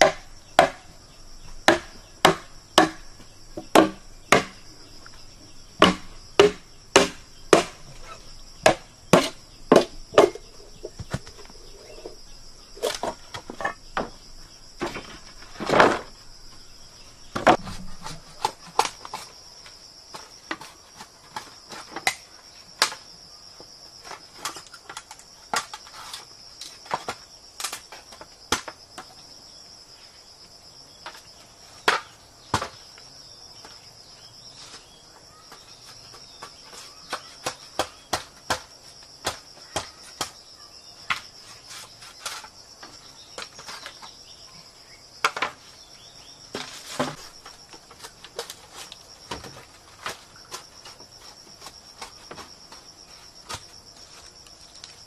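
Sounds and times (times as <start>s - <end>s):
bamboo poles knocking and clacking: 0.0s - 0.9s, 1.6s - 4.7s, 5.8s - 12.2s, 24.4s - 25.9s, 45.2s - 45.6s, 46.5s - 53.7s.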